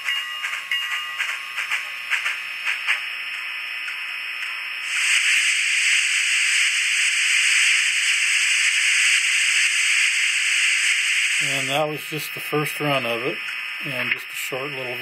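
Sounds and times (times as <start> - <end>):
steady steam hiss: 4.8 - 15.0.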